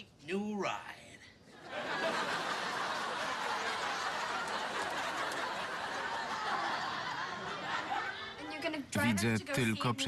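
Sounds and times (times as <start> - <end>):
audience laughing: 1.6 - 8.6.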